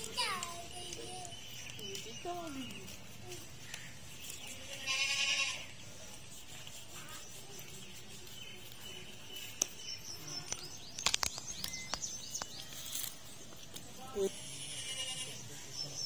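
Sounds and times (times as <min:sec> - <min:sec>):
small birds chirping: 0:00.0 - 0:16.0
sharp clicks: 0:10.4 - 0:13.8.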